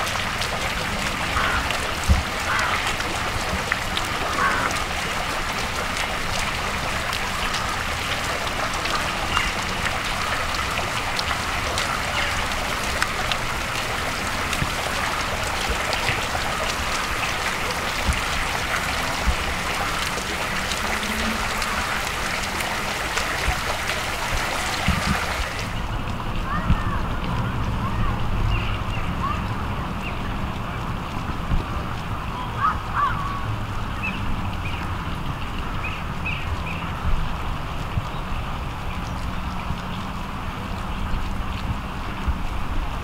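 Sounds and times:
fountain water splashing: 0:00.0 - 0:43.0.

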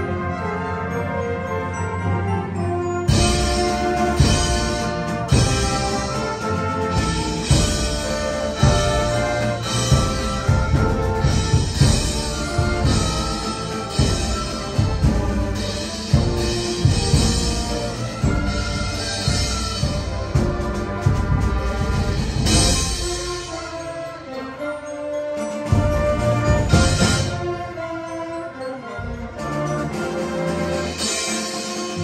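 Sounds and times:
brass holding notes: 0:00.0 - 0:32.0
heavy drum strokes: 0:03.1 - 0:23.8, 0:25.7 - 0:27.8.

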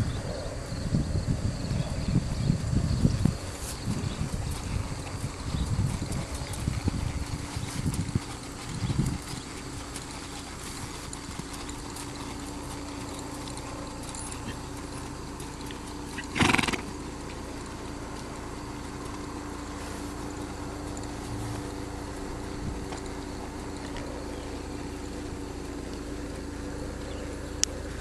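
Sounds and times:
faint steady hum: 0:00.0 - 0:28.0
horse making short loud sound: 0:16.2 - 0:16.9.

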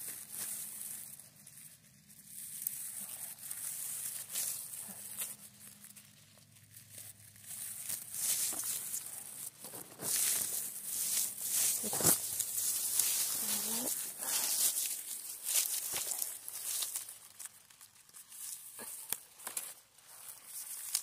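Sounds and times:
plastic glove rustling through grass: 0:00.0 - 0:21.0.

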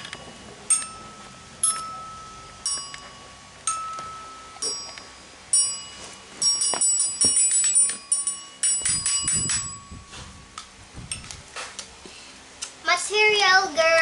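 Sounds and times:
toy xylophone notes: 0:00.0 - 0:10.2.

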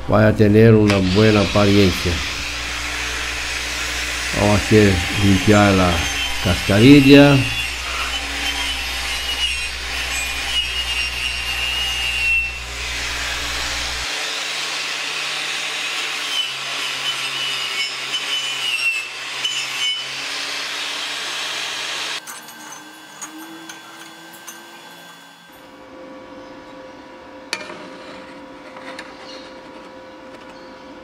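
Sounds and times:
wire wheel scrubbing steel: 0:00.8 - 0:14.1, 0:15.7 - 0:25.7
angle grinder motor whine: 0:00.8 - 0:27.5.

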